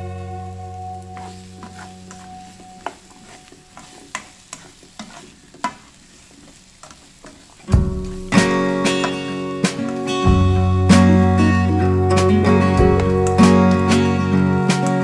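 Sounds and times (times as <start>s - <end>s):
faint sizzle: 0.0s - 15.0s
spatula knocking and scraping pan: 1.2s - 6.0s.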